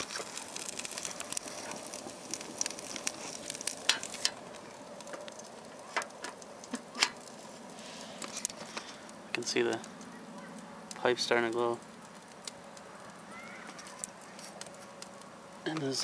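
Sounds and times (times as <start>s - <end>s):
sharp pops of burning wood: 0.0s - 16.0s
wood fire crackling in stove: 0.0s - 16.0s.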